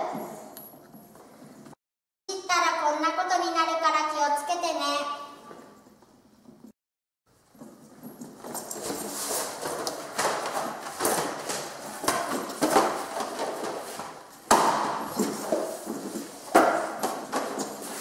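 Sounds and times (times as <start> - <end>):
folders sliding and rustling: 8.5 - 14.3, 15.0 - 18.0.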